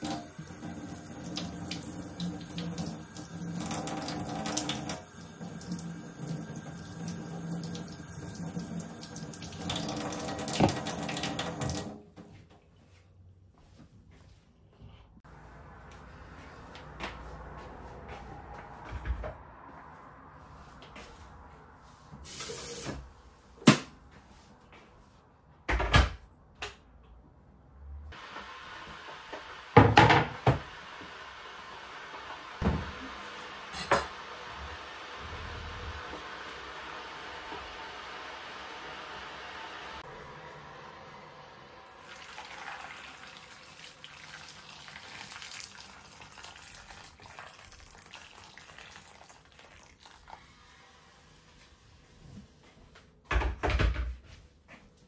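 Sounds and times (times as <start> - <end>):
tap running into steel sink: 9.6 - 11.9
water splashing on tomatoes: 42.0 - 50.5.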